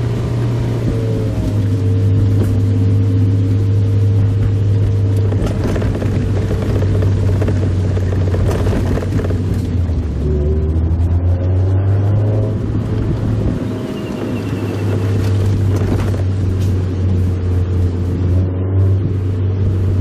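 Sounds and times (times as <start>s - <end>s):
car engine running: 0.0s - 20.0s
road noise: 0.0s - 20.0s.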